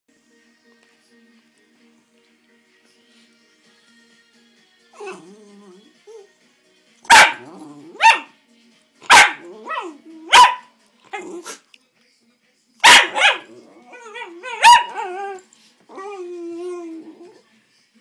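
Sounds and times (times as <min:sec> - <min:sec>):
small dog barking: 0:07.1 - 0:08.3, 0:09.0 - 0:10.7, 0:12.8 - 0:13.5, 0:14.2 - 0:15.2
small dog whining: 0:13.9 - 0:17.4.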